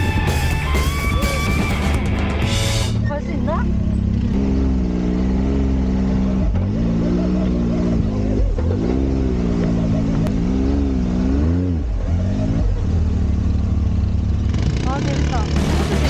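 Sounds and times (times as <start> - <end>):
buggy engine revving: 0.0 - 16.0.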